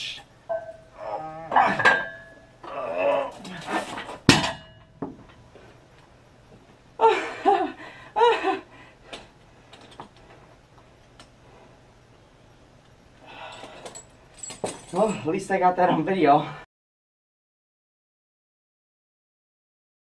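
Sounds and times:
person laughing: 7.0 - 8.7.

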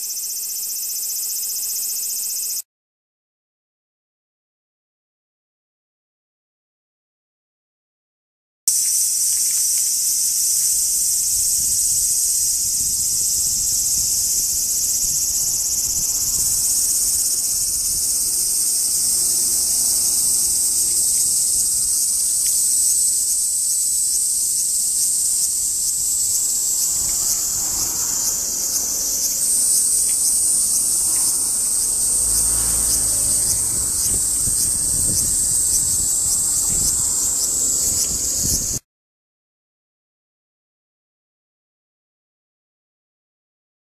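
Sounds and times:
cicada buzzing: 0.0 - 2.6, 8.7 - 38.8.

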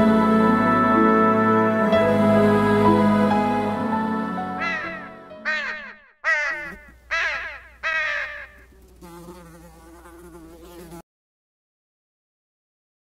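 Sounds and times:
crow cawing: 4.6 - 8.7
fly buzzing: 4.6 - 11.0.

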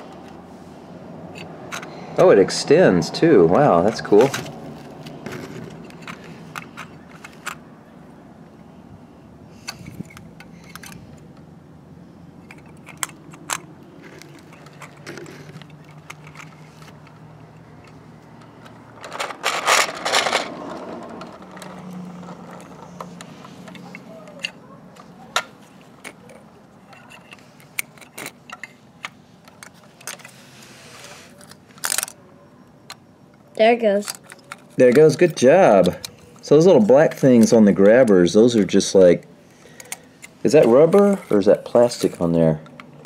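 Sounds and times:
toy plastic and metal clicks: 31.4 - 32.2.

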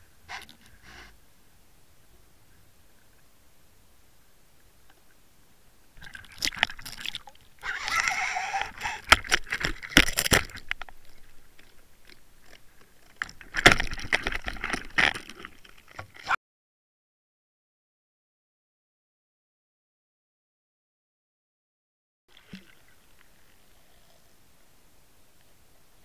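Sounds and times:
lure rig knocks and rattles: 9.1 - 15.3.

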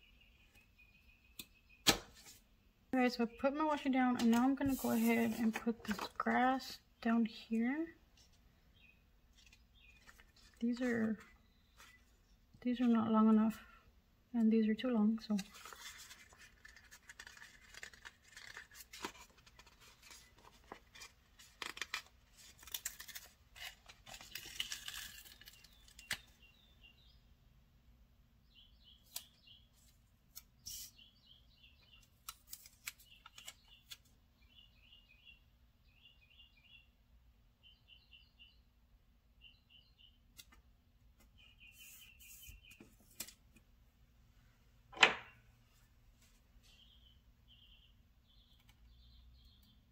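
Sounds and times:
small bird chirping: 0.0 - 1.9, 6.2 - 13.1, 24.1 - 27.2, 28.4 - 36.9, 37.6 - 38.7, 39.4 - 40.5, 41.2 - 43.0, 46.7 - 49.9
sticker paper rustling: 4.2 - 6.4, 15.4 - 26.2.

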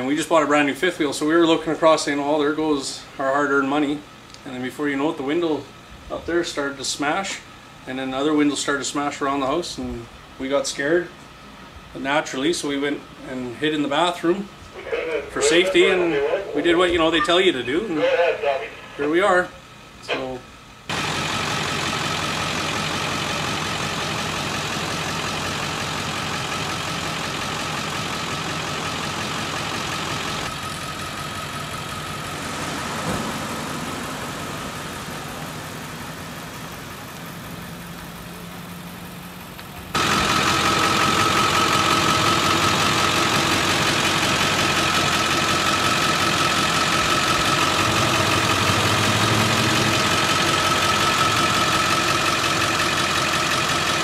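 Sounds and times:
vehicle engine idling: 0.0 - 54.0
thin steady whine: 0.6 - 21.7.

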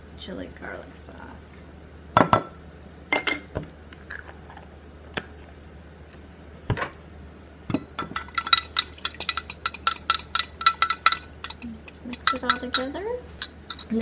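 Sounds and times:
metal spoon clinking on glass: 7.7 - 14.0.

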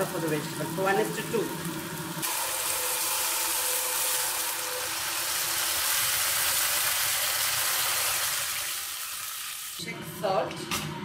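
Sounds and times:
water sizzling in hot wok: 0.0 - 9.8.

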